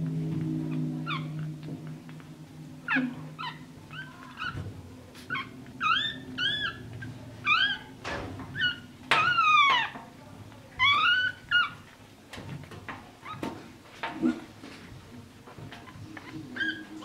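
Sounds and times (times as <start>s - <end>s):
puppies squealing and crying: 0.7s - 1.5s, 2.8s - 10.0s, 10.8s - 12.0s, 15.8s - 17.0s.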